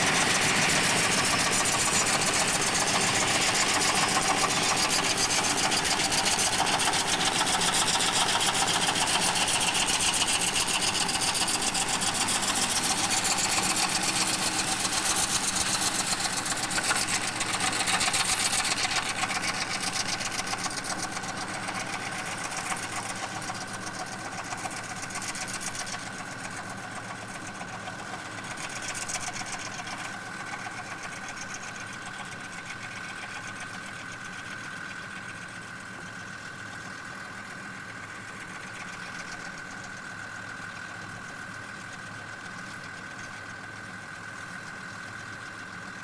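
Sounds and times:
steady high whine: 0.0s - 33.7s
tractor diesel engine running: 0.0s - 46.0s.

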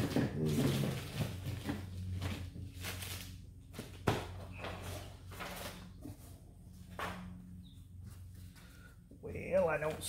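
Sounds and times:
paper and plastic packaging rustling: 0.0s - 6.4s.

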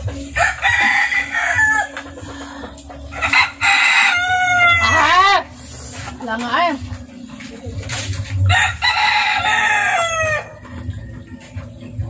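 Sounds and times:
rooster crowing: 3.2s - 5.2s, 8.5s - 10.5s.

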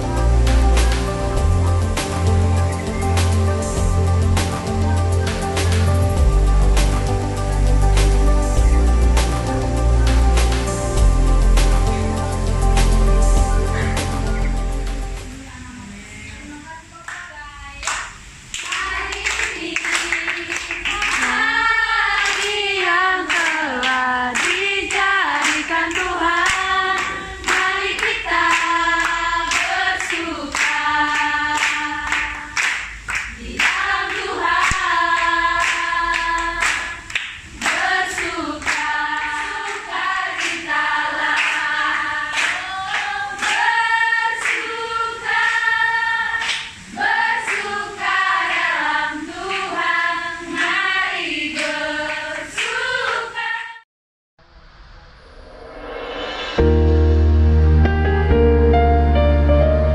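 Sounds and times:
hand claps: 17.9s - 21.4s, 22.2s - 22.6s, 23.3s - 40.7s, 41.3s - 43.7s, 44.4s - 44.7s, 46.4s - 46.7s
women singing together: 18.6s - 53.8s.

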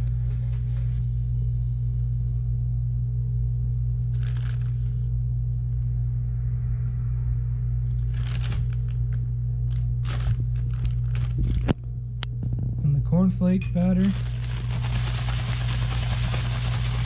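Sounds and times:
steady low hum: 0.0s - 17.0s
plastic bag crinkling: 4.2s - 4.9s, 8.1s - 9.1s, 9.7s - 11.8s, 14.0s - 17.0s.

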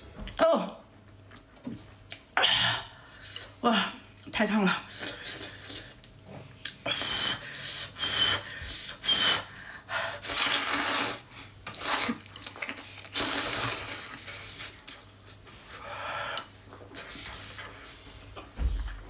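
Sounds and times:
noodles being slurped: 10.2s - 15.0s.

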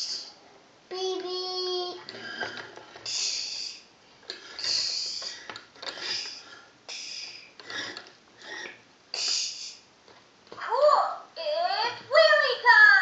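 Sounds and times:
child making hissing noises: 0.0s - 0.4s, 3.0s - 3.9s, 4.6s - 5.4s, 6.0s - 7.6s, 9.1s - 9.9s.

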